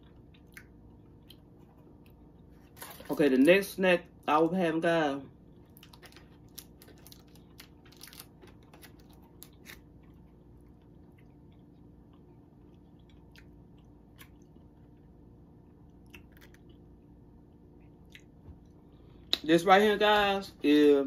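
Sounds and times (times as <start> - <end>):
plastic wrapper crinkling: 5.7 - 9.9.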